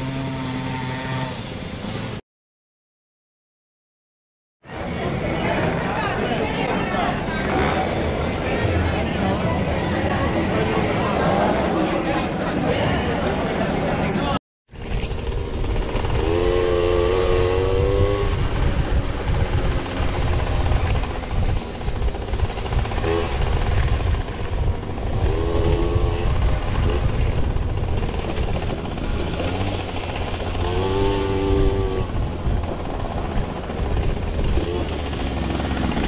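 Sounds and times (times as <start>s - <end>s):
two-stroke moped engine running hard: 0.0s - 2.2s, 4.8s - 14.2s, 14.8s - 36.0s
wind on microphone: 14.8s - 36.0s.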